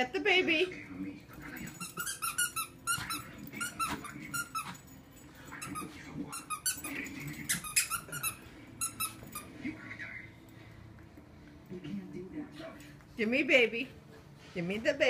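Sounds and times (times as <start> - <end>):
squeaky dog toy squeaking: 1.7 - 4.9, 5.6 - 9.5.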